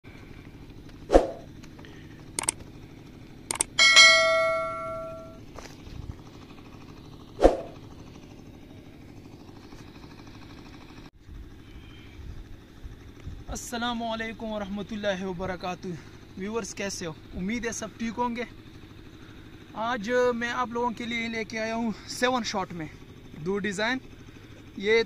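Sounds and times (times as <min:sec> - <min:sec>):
low steady hum: 0:00.1 - 0:16.4
short clicks: 0:02.4 - 0:02.6, 0:03.5 - 0:03.8
notification bell ding: 0:03.8 - 0:05.4.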